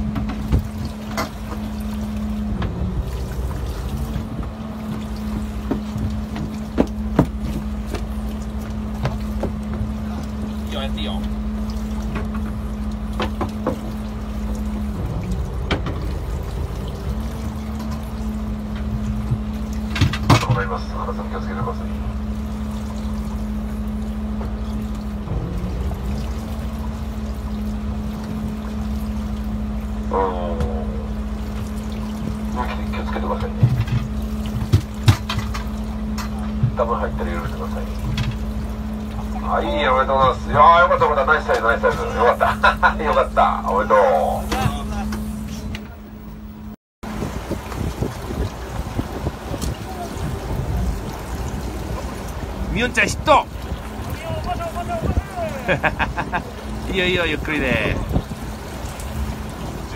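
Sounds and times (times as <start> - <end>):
boat engine running: 0.0 - 59.9
sea water washing against hull: 0.0 - 59.9
knocks on deck: 6.7 - 7.6.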